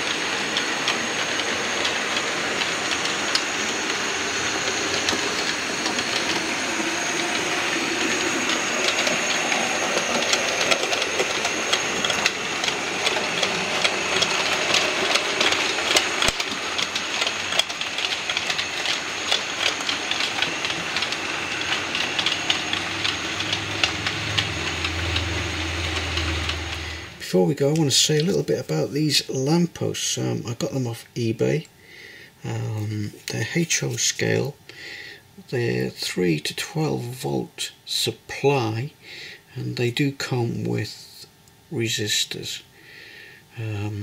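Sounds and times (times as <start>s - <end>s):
low hum: 0.0s - 27.5s
wheels clicking over rail joints: 0.0s - 28.4s
model train rumbling: 0.0s - 31.6s, 35.4s - 38.4s.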